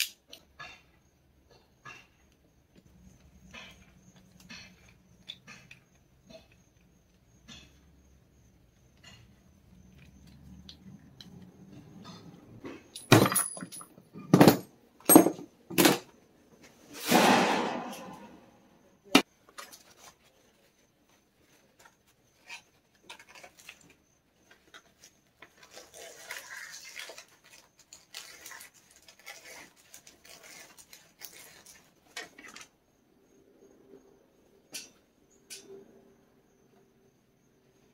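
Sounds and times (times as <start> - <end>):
metal fittings knocking and clinking: 12.9 - 16.0.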